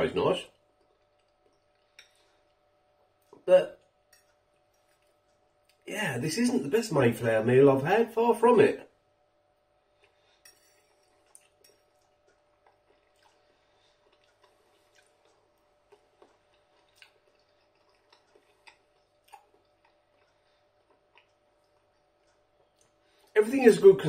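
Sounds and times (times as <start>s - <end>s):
person chewing noodles: 0.6s - 5.8s, 9.8s - 23.4s.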